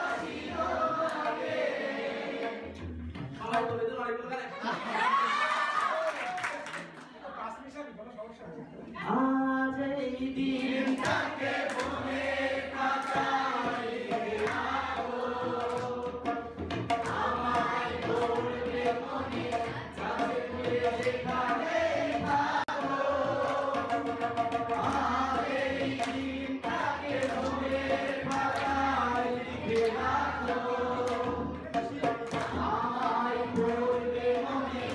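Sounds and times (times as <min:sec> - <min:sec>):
man singing into a microphone: 0:09.0 - 0:10.6
tabla strokes: 0:10.8 - 0:34.9.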